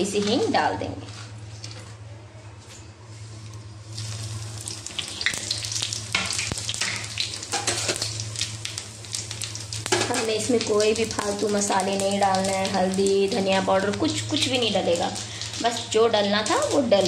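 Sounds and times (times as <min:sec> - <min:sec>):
oil sizzling and crackling: 0:03.2 - 0:17.0
seeds popping in oil: 0:04.7 - 0:14.1.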